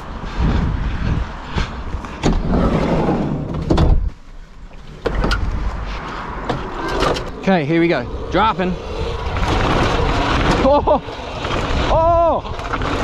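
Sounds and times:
steady low rumble: 0.0 - 12.0.

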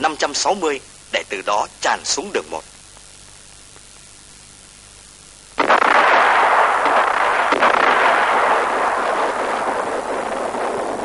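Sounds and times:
artillery shell explosions: 5.6 - 11.0.

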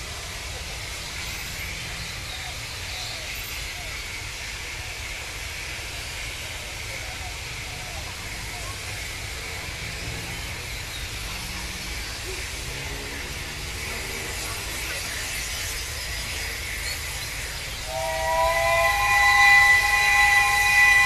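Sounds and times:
steam locomotive rumble and hiss: 0.0 - 21.0
steam whistle chime: 17.8 - 21.0.

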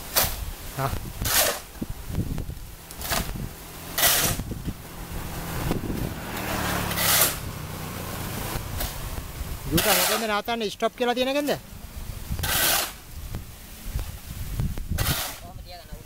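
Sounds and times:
shovel scraping concrete mix: 0.0 - 1.9, 2.9 - 4.6, 6.6 - 7.5, 9.6 - 10.6, 12.3 - 13.1, 14.9 - 15.6.

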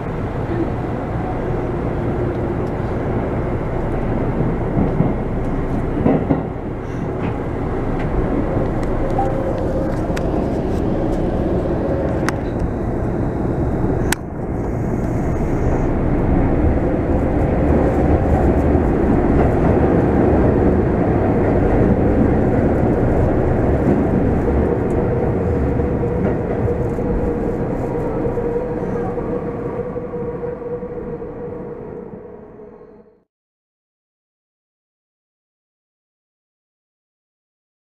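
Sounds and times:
steady train hum: 0.0 - 33.2
subway train rumbling on rails: 0.0 - 33.3
sharp click in train car: 4.7 - 6.6.

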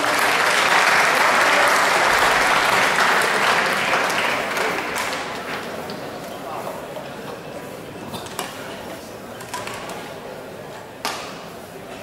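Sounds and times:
spectators applauding: 0.0 - 5.7.

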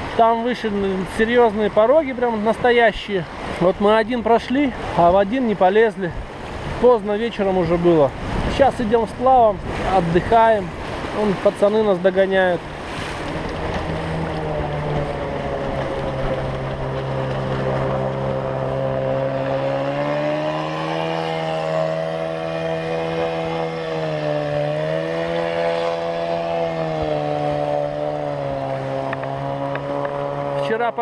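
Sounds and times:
boat outboard motor running: 0.0 - 31.0.

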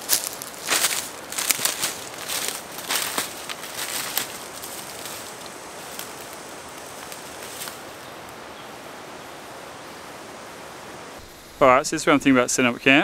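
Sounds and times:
footsteps on dry leaves: 0.0 - 8.9
foliage rustling: 0.0 - 11.8.

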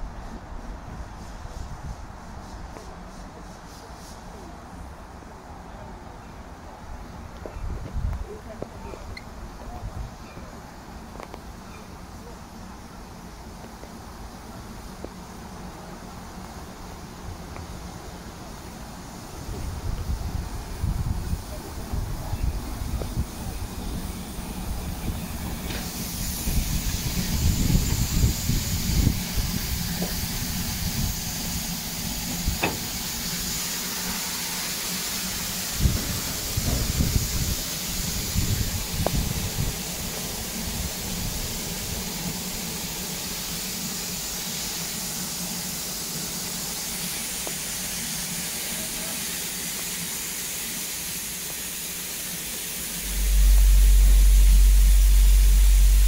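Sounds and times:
steam hissing: 0.0 - 56.0
low rumble: 52.9 - 56.0.

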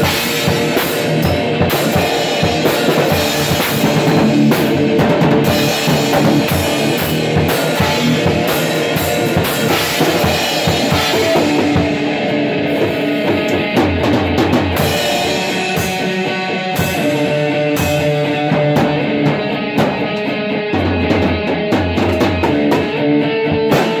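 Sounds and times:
drum kit beat: 0.0 - 24.0
electric guitar through amplifier: 0.0 - 24.0.

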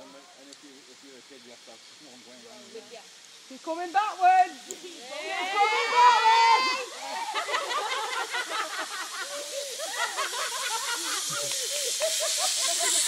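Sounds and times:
zip wire trolley hissing: 5.0 - 13.0.

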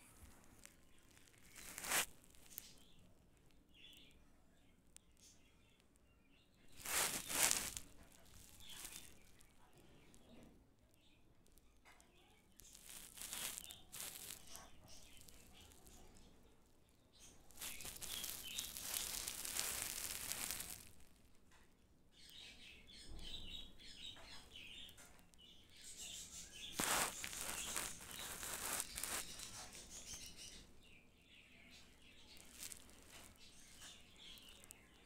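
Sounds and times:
faint high chirps: 0.0 - 21.4, 22.1 - 35.0
squirrel scrabbling on towel: 0.1 - 2.7, 6.7 - 9.2, 12.6 - 15.8, 17.6 - 21.0, 26.1 - 30.3.

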